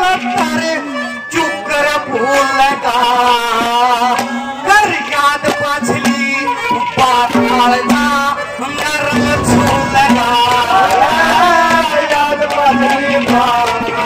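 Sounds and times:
hand-drum strokes: 7.3 - 12.2.

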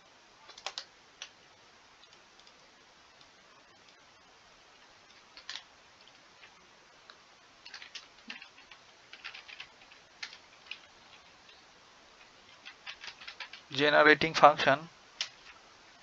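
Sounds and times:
computer keyboard key clicks: 7.7 - 10.8.

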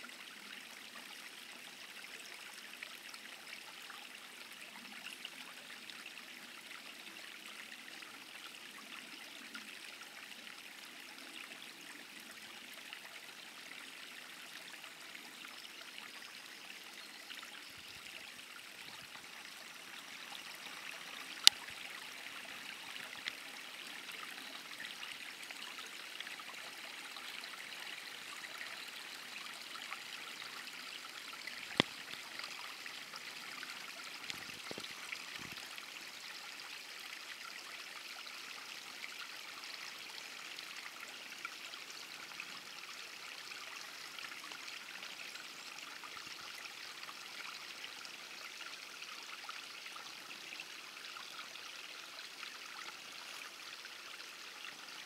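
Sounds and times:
flowing water rushing: 13.9 - 41.4.

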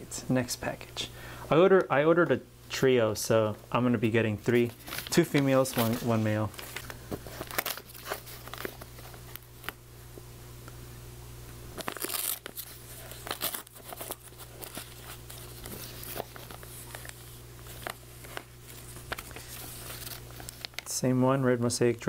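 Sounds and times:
newspaper crinkling: 4.5 - 9.8, 11.8 - 21.0.

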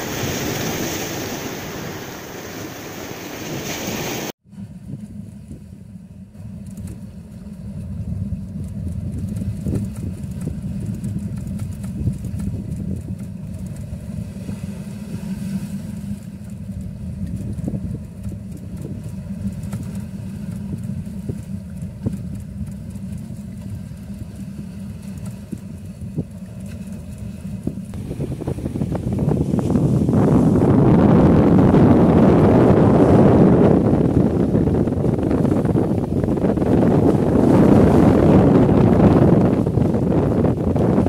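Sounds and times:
boat engine rumble: 0.0 - 41.0
wind buffeting microphone: 0.0 - 41.0.

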